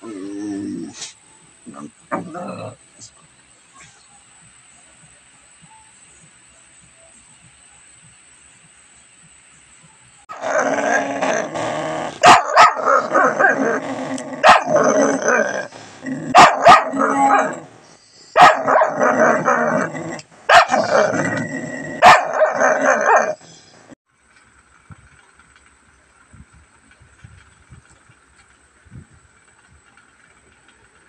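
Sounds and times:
dog growling: 1.7 - 2.8, 10.3 - 23.6
dog barking: 12.2 - 13.6, 14.4 - 14.8, 16.3 - 17.6, 18.4 - 19.0, 20.5 - 20.9, 22.0 - 23.4.

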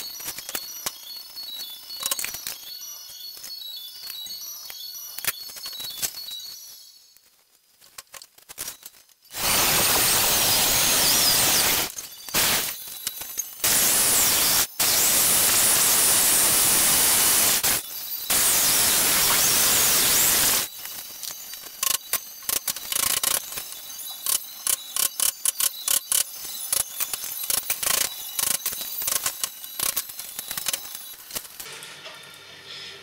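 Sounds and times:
electric drill cutting wood: 9.3 - 12.8, 13.6 - 20.7.

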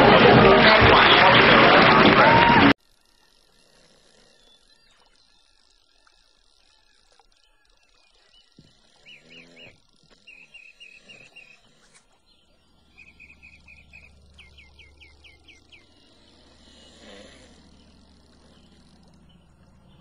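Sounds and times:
small birds chirping: 3.4 - 20.0
low steady hum: 4.4 - 20.0.

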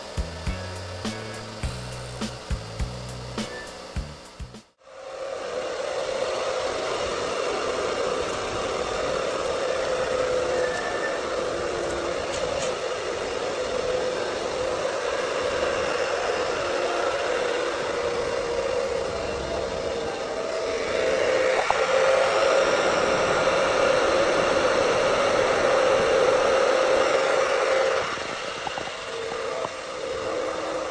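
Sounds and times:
gas flame hissing with whistle: 0.0 - 30.9.

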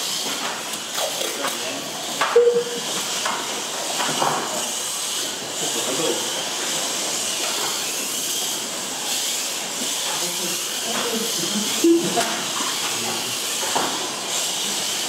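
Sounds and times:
rc cars whining: 0.0 - 15.0
short tone: 2.4 - 2.8.

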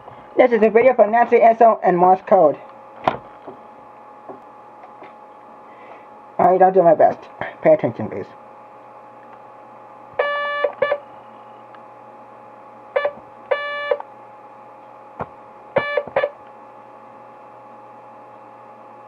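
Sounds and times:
morse code beeps: 10.2 - 11.0, 13.0 - 14.0, 15.8 - 16.4.

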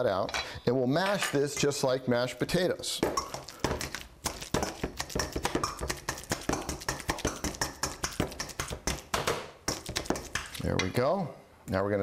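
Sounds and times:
avocado squelching: 2.9 - 10.7
metal masher knocking on bowl: 3.0 - 10.5.

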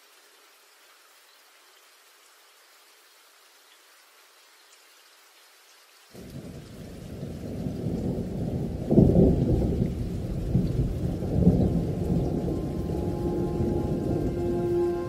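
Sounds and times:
rain: 0.0 - 15.0
rolling thunder: 6.2 - 15.0.

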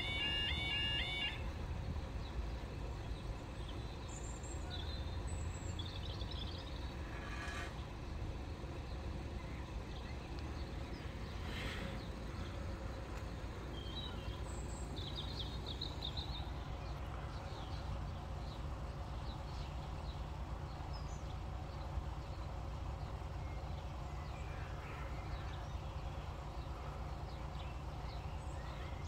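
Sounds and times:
low outdoor rumble: 0.0 - 29.0
bird chirps: 13.7 - 29.0.

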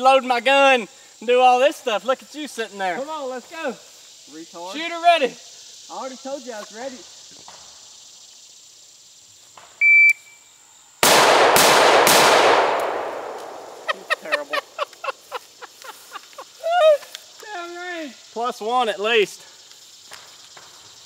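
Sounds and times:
shot timer beep: 9.8 - 10.3
rifle shots: 11.0 - 14.2.

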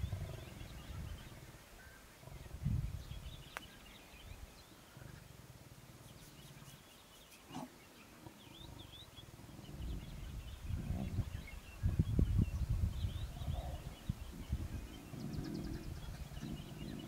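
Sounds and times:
low lion growls: 13.2 - 17.0.

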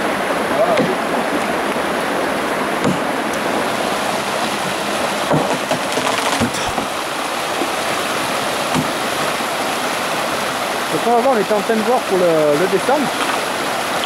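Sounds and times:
stream rushing over rocks: 0.0 - 14.0
short knocks: 2.8 - 3.1, 5.2 - 7.0.

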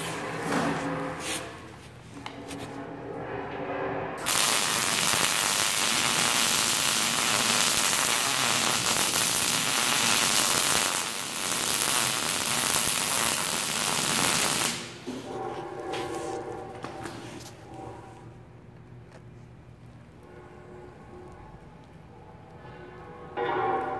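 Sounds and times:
arc welding crackle: 4.2 - 15.1.

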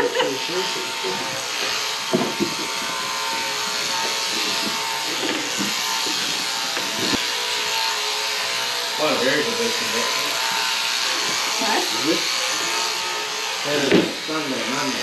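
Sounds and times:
shearing handpieces buzzing: 0.0 - 15.0
sharp knocks: 2.1 - 2.9.

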